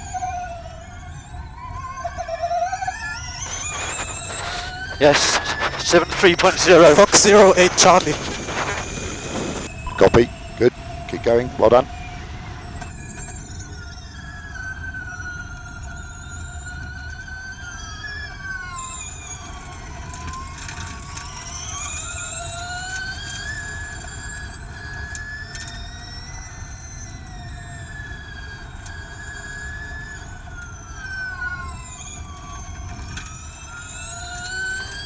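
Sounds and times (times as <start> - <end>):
electric race car whining: 0.0 - 35.0
low road and wind rumble: 0.0 - 35.0.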